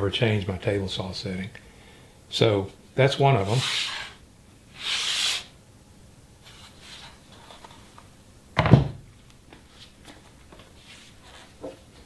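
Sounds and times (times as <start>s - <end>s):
wooden jig set down thunk: 8.6s - 9.0s.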